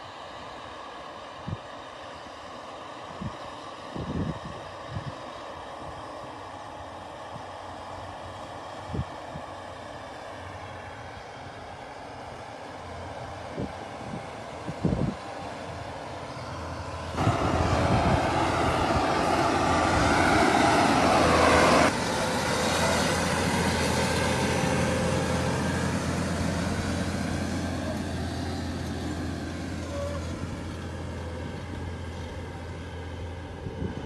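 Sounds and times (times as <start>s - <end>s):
tractor diesel engine under load: 7.6s - 34.0s
tractor tracks noise: 14.0s - 34.0s.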